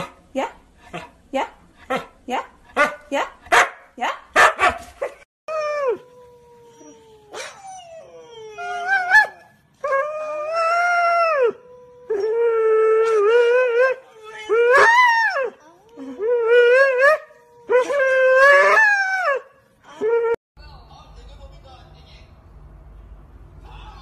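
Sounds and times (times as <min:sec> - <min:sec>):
dog barking: 0:02.8 - 0:05.2
dogs howling: 0:05.5 - 0:19.5.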